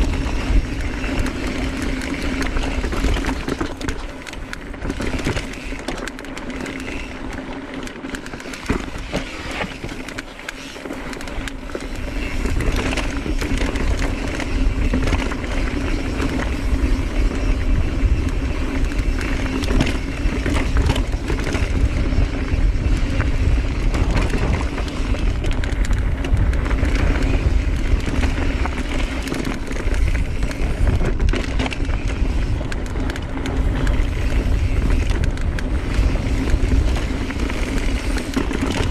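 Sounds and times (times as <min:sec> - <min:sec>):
bike rattling: 0:00.0 - 0:38.9
bike tyres crunching on dirt: 0:00.0 - 0:38.9
wind rumbling on microphone: 0:00.0 - 0:38.9.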